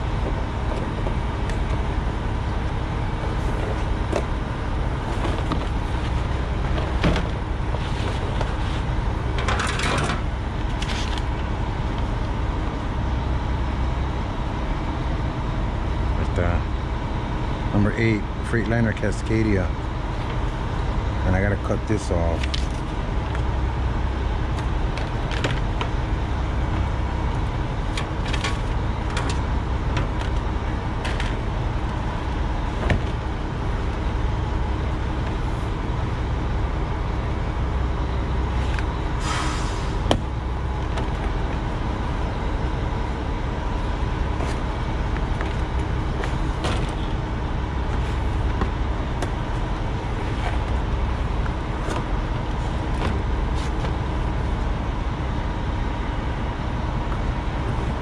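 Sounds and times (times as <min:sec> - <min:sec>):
truck engine idling: 0:00.0 - 0:58.0
plastic and cardboard rustling: 0:05.0 - 0:09.7.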